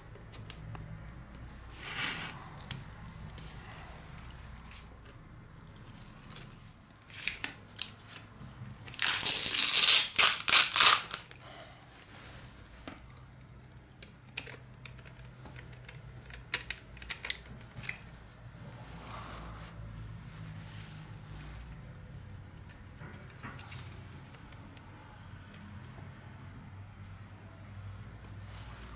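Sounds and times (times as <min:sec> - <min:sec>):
adhesive tape tearing: 0:05.5 - 0:08.0, 0:08.9 - 0:11.4.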